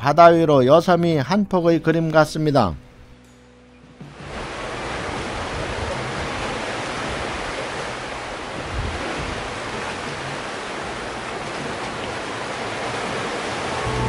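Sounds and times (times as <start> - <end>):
waves breaking on rocks: 4.1 - 14.0.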